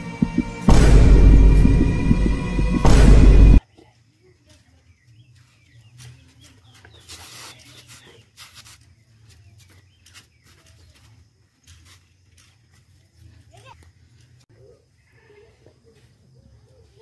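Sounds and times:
music with heavy throb: 0.0s - 3.6s.

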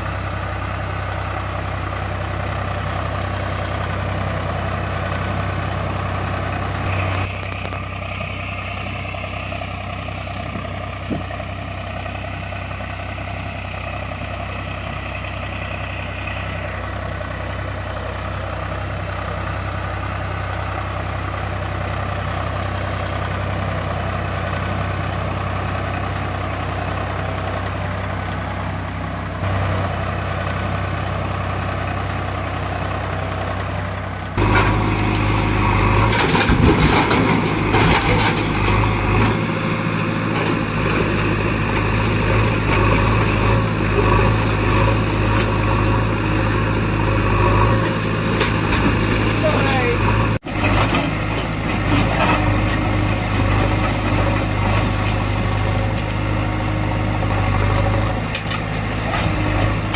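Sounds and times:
engine idling low throb: 0.0s - 36.8s
rough engine with clattering: 0.0s - 59.9s.

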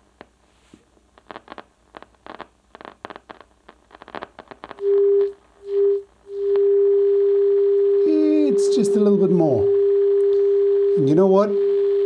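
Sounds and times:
steady test tone from speaker: 4.7s - 12.0s.

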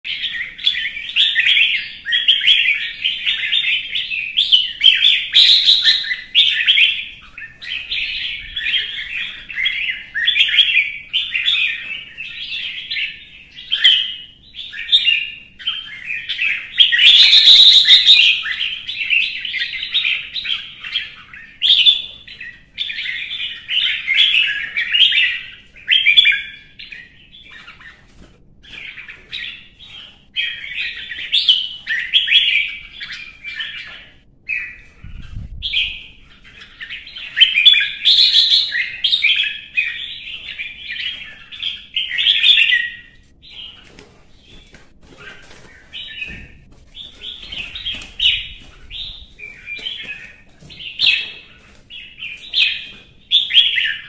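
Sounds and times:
bird singing chirpy phrases: 0.1s - 28.0s, 29.1s - 43.8s.

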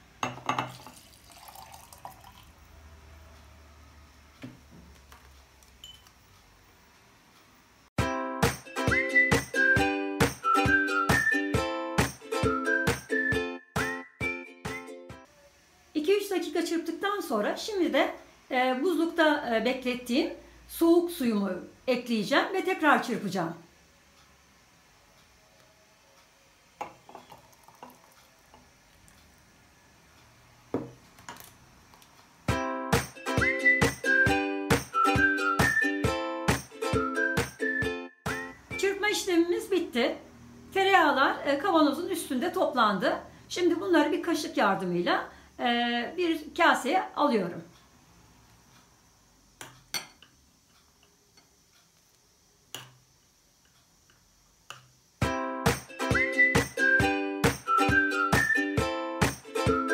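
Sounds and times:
glass knocking on wooden board: 0.2s - 0.8s, 26.8s - 27.4s, 30.8s - 31.0s.

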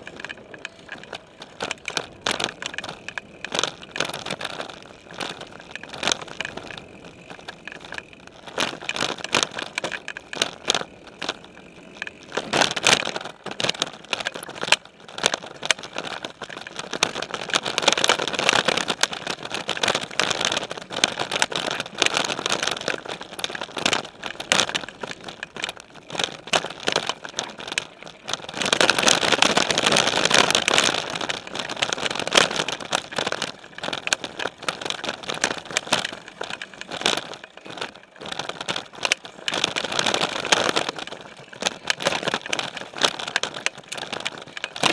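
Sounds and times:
bike rattling and clattering: 0.0s - 44.9s
tyres crunching over dirt and rocks: 0.0s - 44.9s.

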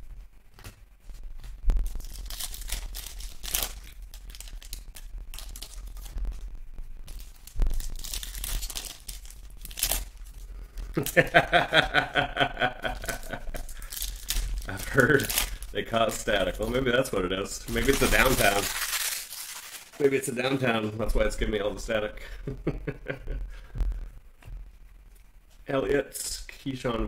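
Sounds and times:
foil wrappers crinkling: 0.5s - 22.1s
foil packs tearing open: 1.4s - 6.4s, 7.0s - 12.0s, 12.8s - 20.6s.

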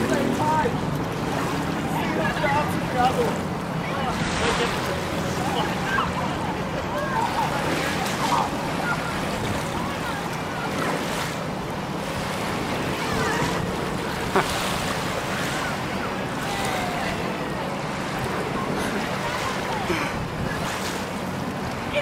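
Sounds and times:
faint distant voices: 0.0s - 22.0s
water lapping and splashing: 0.0s - 22.0s
wind on microphone: 5.4s - 21.7s.

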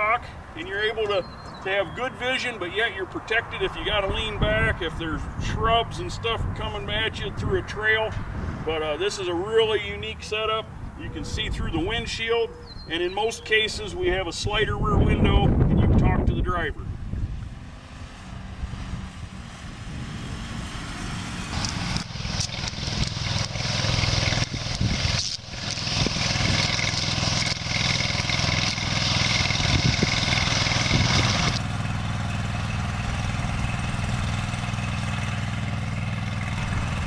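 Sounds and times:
truck engine running: 16.9s - 37.0s.

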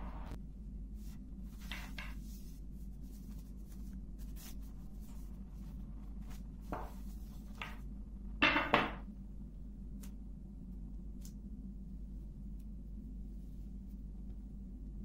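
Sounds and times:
steady low hum: 0.0s - 15.0s
dough sheet rustling: 1.0s - 9.1s.

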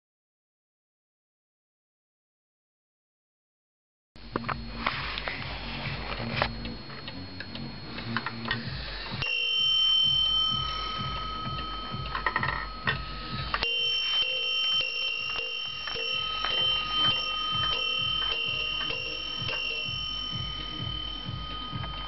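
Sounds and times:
clock ticking: 5.8s - 22.0s
wall clock bell striking: 9.2s - 22.0s.

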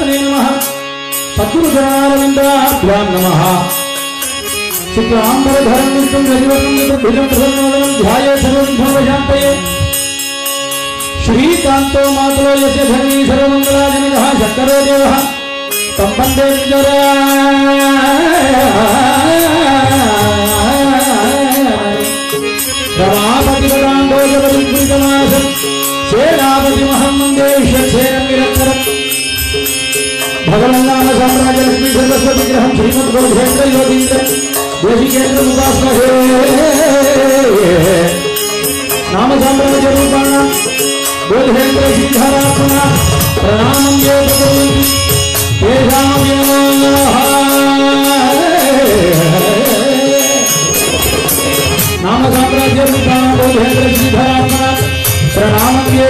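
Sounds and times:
man singing: 0.0s - 10.1s, 10.8s - 29.4s, 30.1s - 56.0s
harmonium drone: 0.0s - 56.0s.

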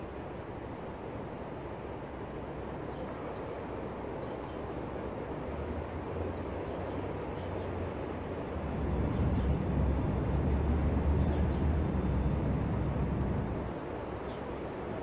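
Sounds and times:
street traffic noise: 0.0s - 15.0s
deep vehicle rumble: 5.4s - 13.8s.

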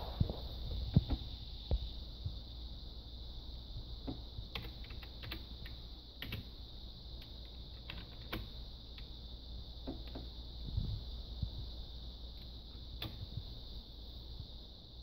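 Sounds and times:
steady high hiss: 0.0s - 15.0s
computer keyboard typing clicks: 4.5s - 6.5s, 7.4s - 9.1s.

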